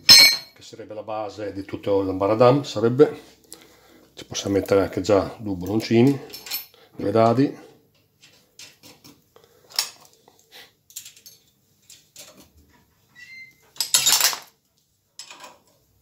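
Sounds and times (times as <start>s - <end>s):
nuts and bolts clinking on steel: 0.0s - 0.6s, 5.6s - 6.8s, 7.9s - 10.2s, 10.9s - 12.6s, 13.2s - 15.9s
metallic ring: 0.1s - 0.6s
metal clatter: 13.8s - 14.5s.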